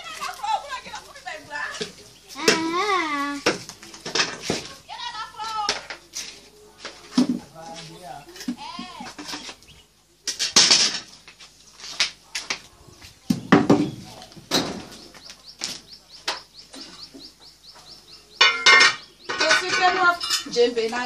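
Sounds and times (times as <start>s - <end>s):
small bird chirping: 13.4s - 21.0s
cooking pot and dishes knocking: 18.4s - 20.4s.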